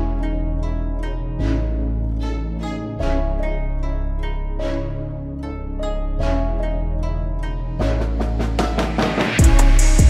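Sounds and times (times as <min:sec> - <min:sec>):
plucked-string notes: 0:00.0 - 0:10.0
drum beat with kick drum: 0:07.9 - 0:10.0.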